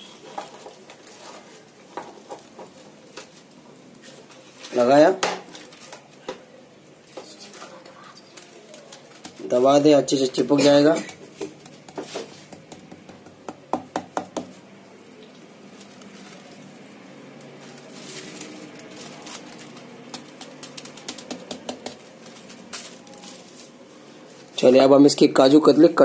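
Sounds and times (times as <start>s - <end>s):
paper rustling: 0.1s - 6.3s, 7.1s - 12.6s, 15.5s - 24.7s
hands tapping paper: 8.3s - 14.6s, 17.4s - 23.7s.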